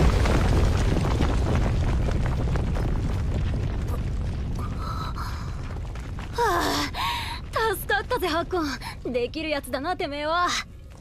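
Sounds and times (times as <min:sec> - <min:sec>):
low rumble of rockfall: 0:00.0 - 0:11.0
rubble crackling: 0:00.0 - 0:11.0.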